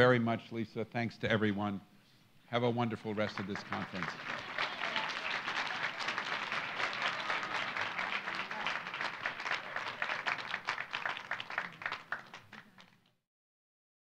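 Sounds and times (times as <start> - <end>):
audience applauding: 3.1 - 13.1.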